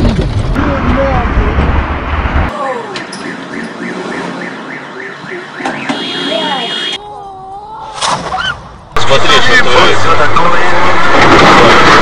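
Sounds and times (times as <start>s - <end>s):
car alarm warbling chirp: 2.8s - 7.0s.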